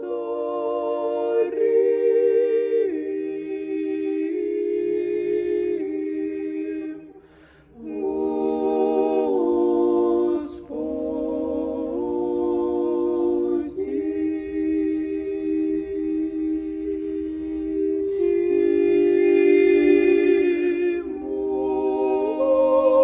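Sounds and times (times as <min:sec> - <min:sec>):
women singing a cappella chant: 0:00.0 - 0:23.0.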